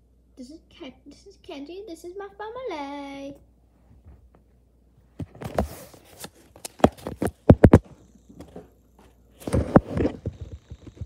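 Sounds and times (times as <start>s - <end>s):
microphone handling rustling: 5.2s - 8.7s, 9.4s - 11.0s.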